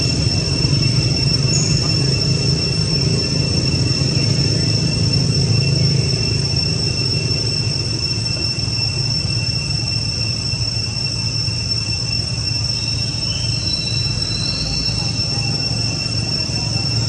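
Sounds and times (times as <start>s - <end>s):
forest insects droning: 0.0s - 17.0s
low steady rumble: 0.0s - 17.0s.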